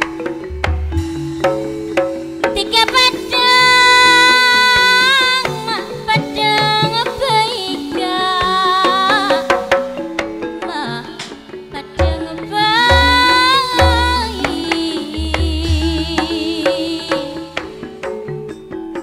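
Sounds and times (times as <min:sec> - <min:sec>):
band accompaniment: 0:00.0 - 0:19.0
hand drum strokes: 0:00.0 - 0:19.0
woman singing through microphone: 0:02.5 - 0:09.8, 0:10.6 - 0:17.9.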